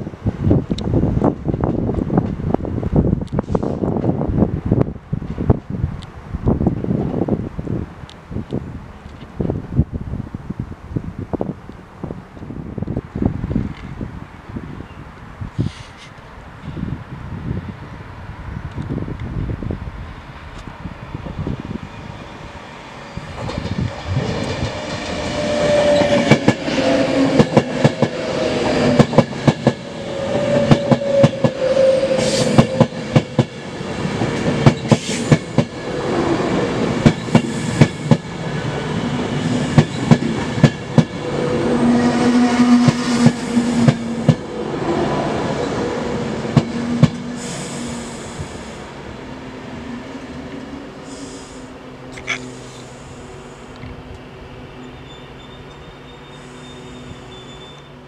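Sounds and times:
train whine falling in pitch: 0:23.0 - 0:33.5, 0:39.4 - 0:45.8
train wheels clacking over rail joints: 0:23.3 - 0:29.9, 0:30.6 - 0:35.8, 0:37.0 - 0:38.3, 0:39.7 - 0:41.2.

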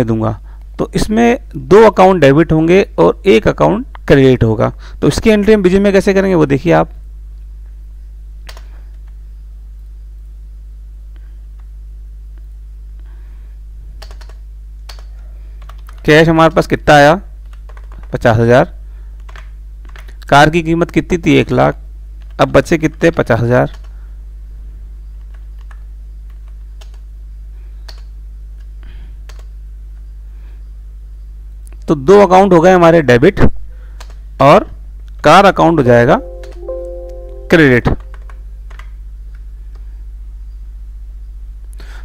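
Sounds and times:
electrical mains hum: 0:00.0 - 0:42.0
keyboard keys clicking: 0:36.3 - 0:37.3.

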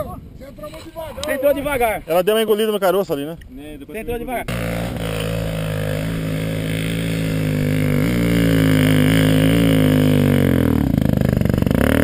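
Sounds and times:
dirt bike engine idling: 0:04.5 - 0:12.0.

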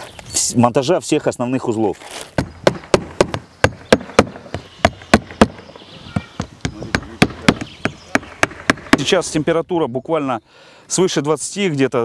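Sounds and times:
hammer driving nails into shingles: 0:02.4 - 0:05.7, 0:06.3 - 0:09.1.

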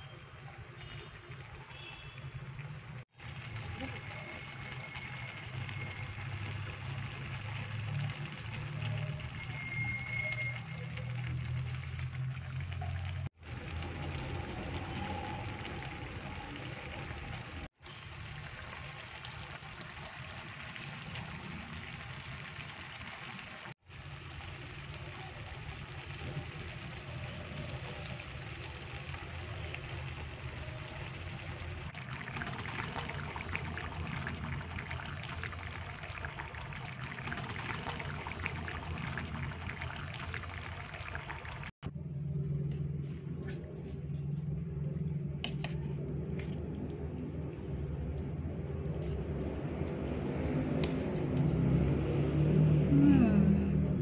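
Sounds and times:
stew bubbling in a pan: 0:00.0 - 0:41.8.

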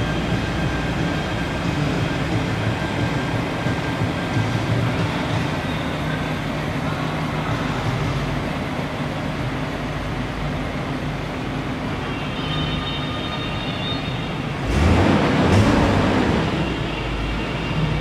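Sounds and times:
car engine idling: 0:00.0 - 0:12.2.

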